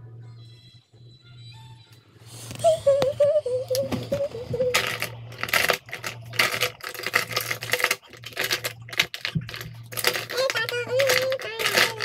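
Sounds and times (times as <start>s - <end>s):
clicking and rustling of handling: 4.7s - 12.0s.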